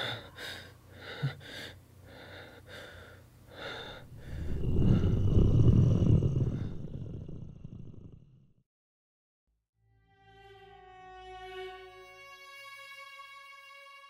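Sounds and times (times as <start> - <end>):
boy breathing shakily and gasping: 2.5 - 6.8
deep low rumble: 3.8 - 8.2.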